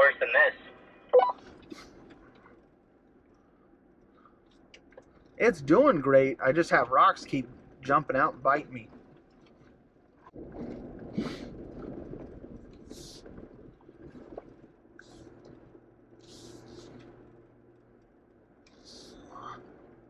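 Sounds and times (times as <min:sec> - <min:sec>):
tyres rumbling on rock and gravel: 0:10.3 - 0:15.7.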